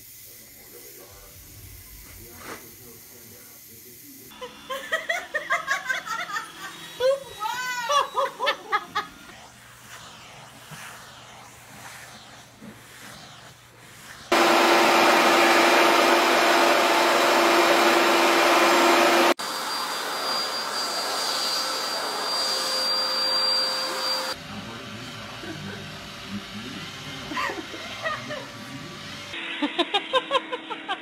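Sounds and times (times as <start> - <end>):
vacuum cleaner with high whine: 0.0 - 29.4
vacuum cleaner with low hum: 0.0 - 29.4.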